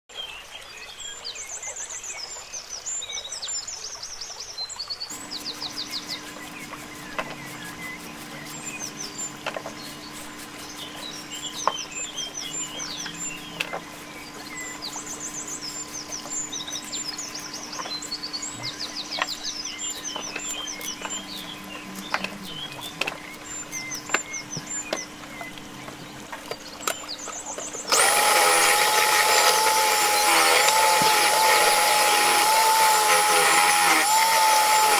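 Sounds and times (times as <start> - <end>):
birds chirping and trilling: 0.2 - 34.9
food processor motor running: 5.1 - 24.4, 27.6 - 34.9
steady low hum: 5.1 - 34.9
vegetable peeler scraping carrots: 5.1 - 34.9.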